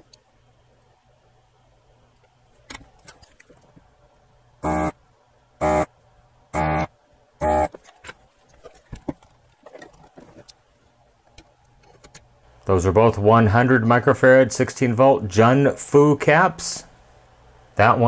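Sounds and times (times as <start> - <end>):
desoldering pump buzzing: 4.6 - 5.0, 5.6 - 5.9, 6.5 - 8.0.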